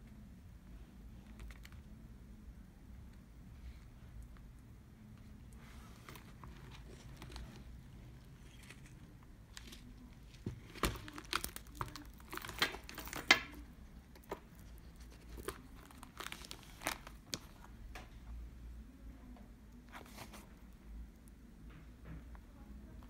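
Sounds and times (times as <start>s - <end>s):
leather bag rustling and crinkling: 5.7s - 17.7s.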